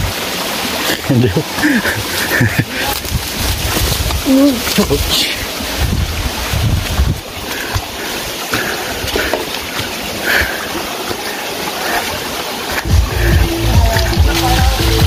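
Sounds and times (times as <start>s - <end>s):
flowing stream water: 0.0s - 15.0s.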